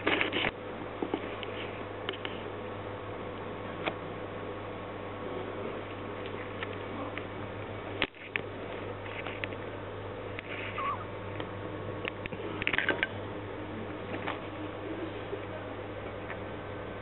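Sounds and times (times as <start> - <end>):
steady low hum: 0.0 - 17.0
rat squeak: 10.6 - 11.1.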